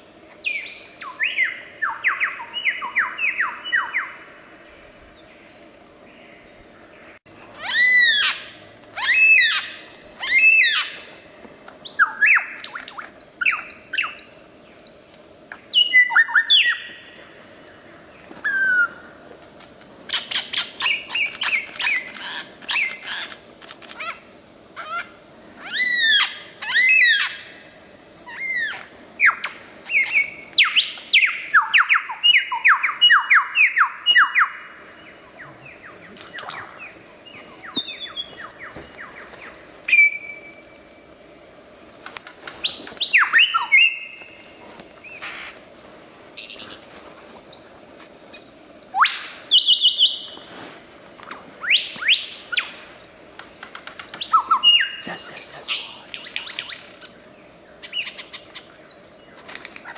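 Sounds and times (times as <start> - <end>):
lyrebird singing: 28.3 - 46.8, 51.6 - 59.9.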